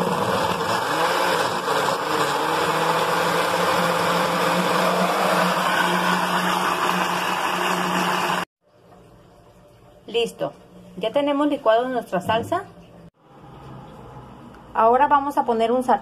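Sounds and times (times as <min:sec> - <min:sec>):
blender motor running: 0:00.0 - 0:08.5.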